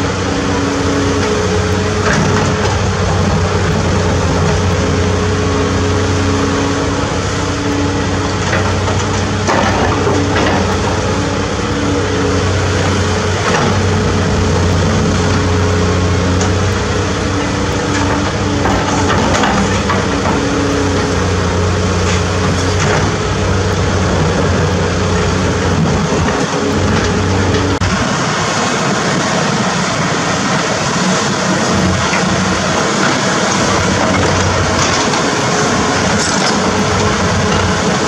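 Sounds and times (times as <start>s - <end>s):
excavator diesel engine running: 0.0s - 38.0s.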